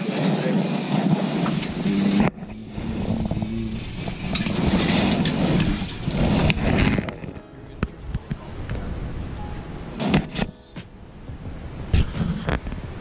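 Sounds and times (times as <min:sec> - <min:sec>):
loud rumbling noise: 0:00.0 - 0:13.0
clothing rustling on microphone: 0:10.3 - 0:13.0.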